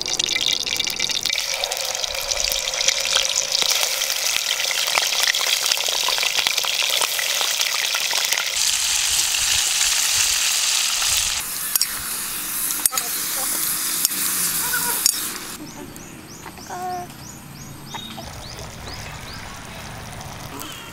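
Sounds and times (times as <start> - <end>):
liver sizzling in a pot: 0.0 - 15.6.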